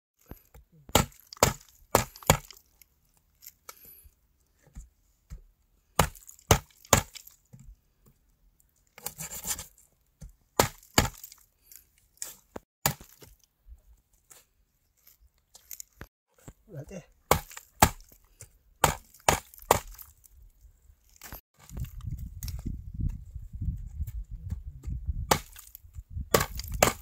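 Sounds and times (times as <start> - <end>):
knife chopping on wooden board: 17.3 - 18.0, 18.8 - 20.0, 25.3 - 25.7.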